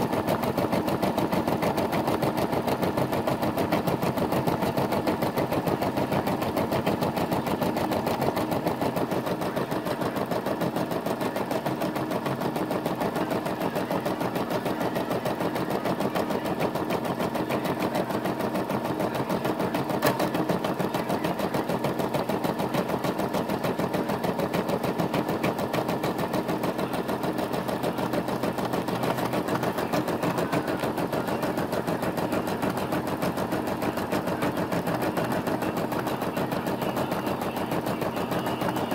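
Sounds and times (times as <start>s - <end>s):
embroidery machine stitching: 0.0s - 38.9s.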